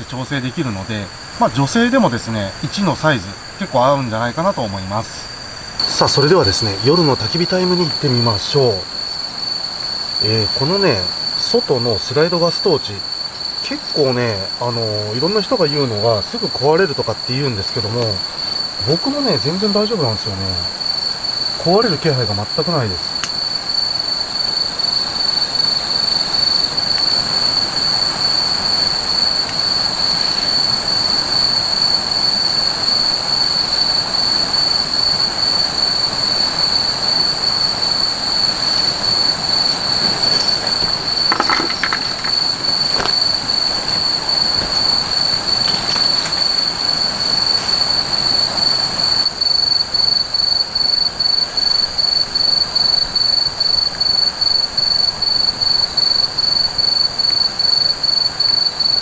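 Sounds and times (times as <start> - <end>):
night insects trilling: 0.0 - 59.0
faint clicks and knocks: 40.0 - 44.0.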